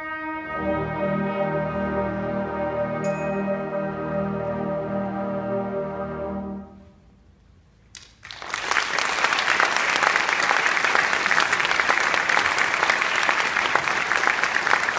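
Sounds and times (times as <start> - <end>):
audience applauding: 8.0 - 14.9.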